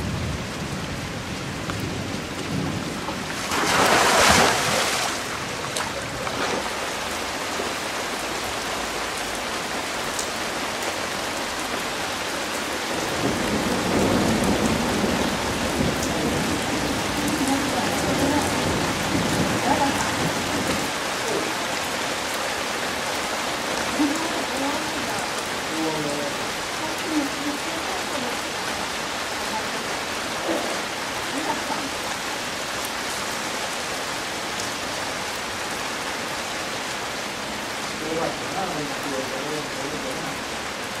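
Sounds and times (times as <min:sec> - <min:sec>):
low rumble of thunder: 0:00.0 - 0:06.6, 0:12.9 - 0:21.0
heavy rain falling: 0:00.0 - 0:41.0.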